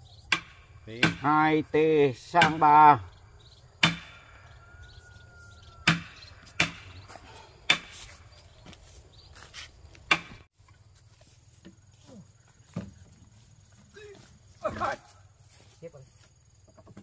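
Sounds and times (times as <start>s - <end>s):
hand tool striking timber: 0.3s - 1.4s, 2.4s - 2.8s, 3.8s - 4.2s, 5.8s - 6.9s, 7.7s - 8.0s, 10.1s - 10.4s.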